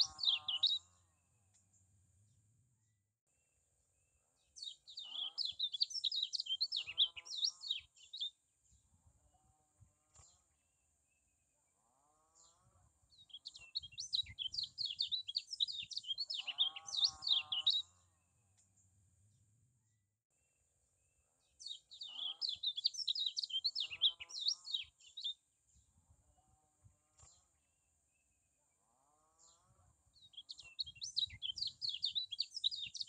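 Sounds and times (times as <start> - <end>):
bird twittering song: 0.0 - 1.9, 4.4 - 8.4, 12.3 - 19.0, 21.4 - 25.9, 29.4 - 33.0.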